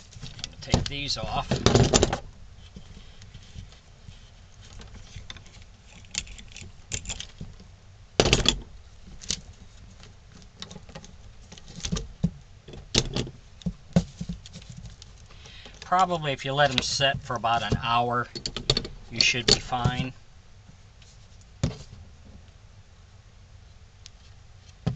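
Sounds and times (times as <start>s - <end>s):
knocks of metal on wood: 8.2s - 8.7s.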